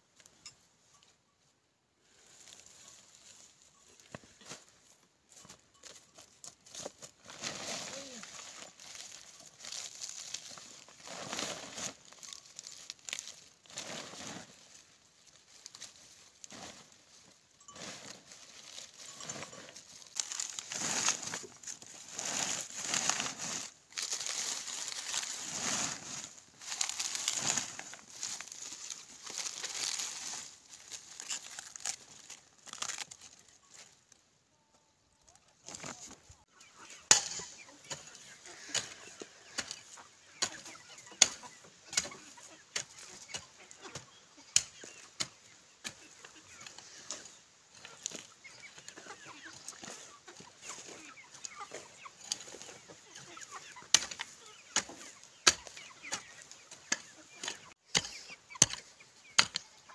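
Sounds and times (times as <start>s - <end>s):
plastic sack crinkling: 20.0s - 33.4s
cabbage leaves tearing: 26.8s - 33.2s.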